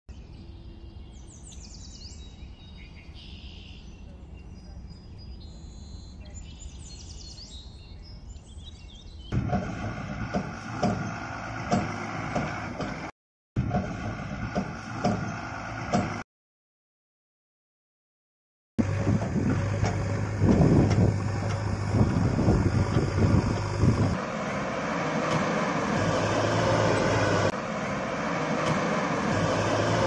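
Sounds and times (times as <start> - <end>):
birds chirping: 0.1 - 9.4.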